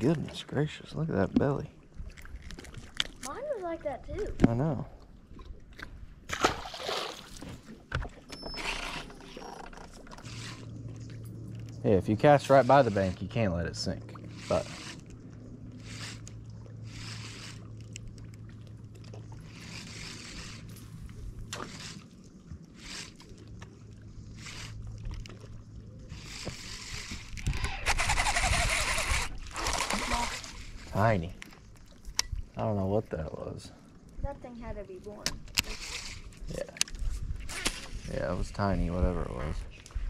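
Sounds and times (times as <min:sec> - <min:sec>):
low steady hum: 0:00.0 - 0:40.0
fish splashing into water: 0:06.3 - 0:07.8.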